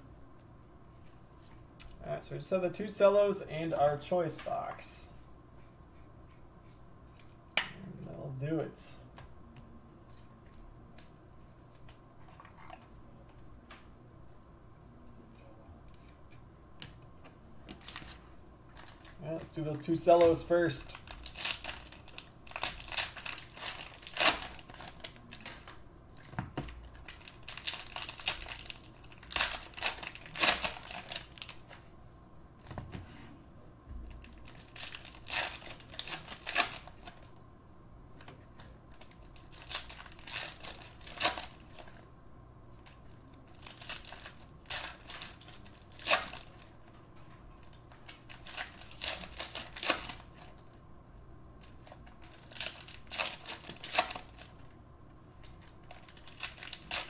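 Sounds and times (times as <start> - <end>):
cellophane wrappers crinkling and tearing: 17.8 - 31.8, 34.0 - 37.4, 38.5 - 42.1, 42.8 - 46.9, 47.6 - 50.8, 51.6 - 54.8, 55.4 - 57.0.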